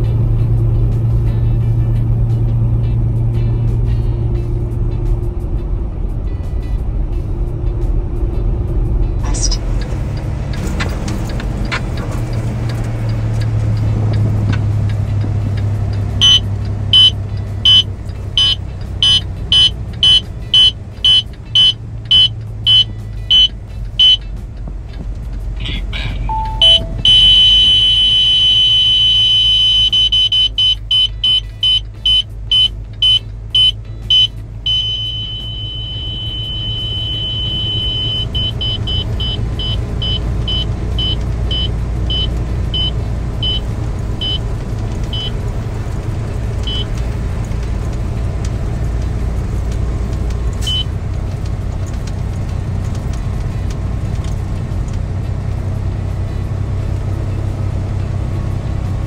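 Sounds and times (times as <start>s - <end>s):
road noise: 0.0s - 59.0s
truck engine rumble: 0.0s - 59.0s
high-pitched warning alarm beeps: 16.2s - 24.2s, 26.3s - 44.4s
two-note falling chime: 26.3s - 28.0s.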